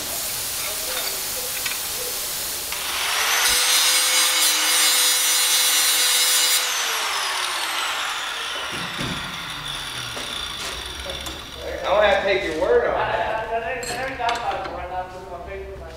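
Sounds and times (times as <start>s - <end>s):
angle grinder grinding metal: 2.7s - 12.5s.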